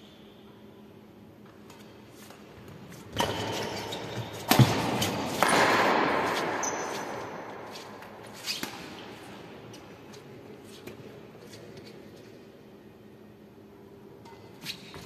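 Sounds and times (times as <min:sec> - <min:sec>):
racket hitting shuttlecock: 0:03.2 - 0:09.4.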